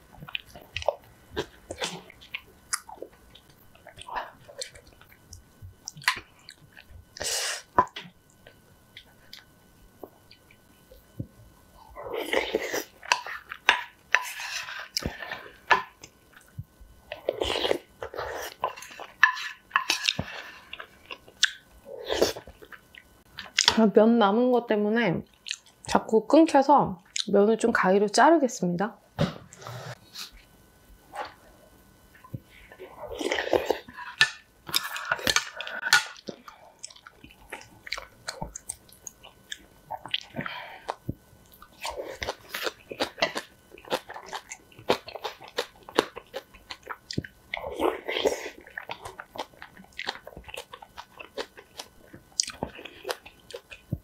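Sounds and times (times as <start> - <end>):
chewing: 0.2 - 11.2, 25.2 - 25.9, 32.2 - 54.0.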